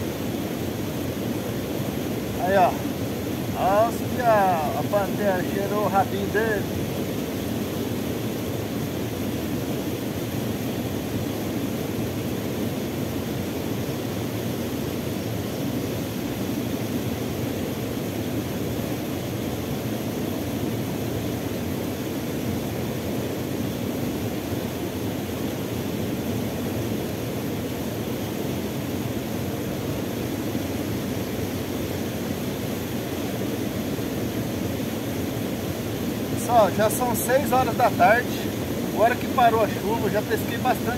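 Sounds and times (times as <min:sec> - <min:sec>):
water rushing over small fall: 0:00.0 - 0:09.3, 0:21.6 - 0:40.9.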